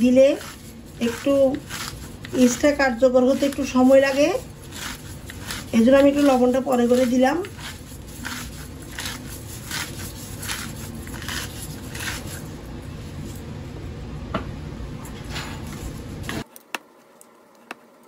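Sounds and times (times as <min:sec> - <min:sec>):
spatula stirring sticky dough: 0:00.0 - 0:13.3.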